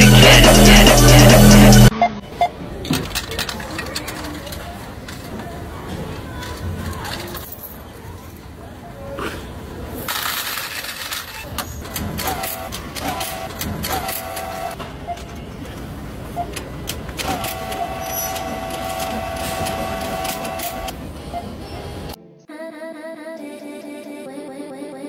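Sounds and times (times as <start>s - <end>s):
coins clattering in machine: 10.1s - 14.8s.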